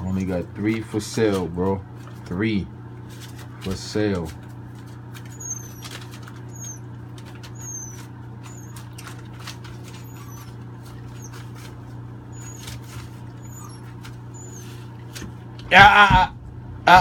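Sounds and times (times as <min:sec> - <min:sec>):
paper rustling and scratching: 0:00.0 - 0:02.4, 0:03.0 - 0:15.5
steady low hum: 0:00.0 - 0:17.0
puppies squeaking: 0:04.9 - 0:15.2.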